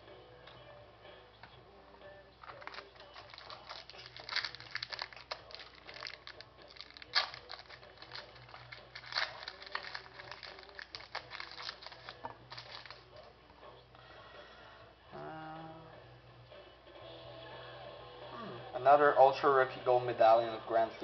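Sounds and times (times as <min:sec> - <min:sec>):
wrapper tearing and crinkling: 0:02.4 - 0:13.2.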